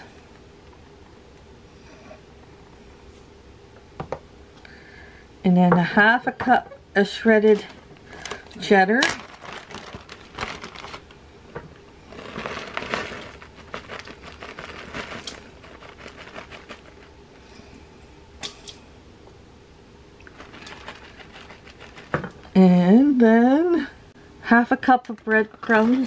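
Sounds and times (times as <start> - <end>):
plastic bag crinkling: 7.5 - 11.2, 12.0 - 17.1, 20.2 - 22.4.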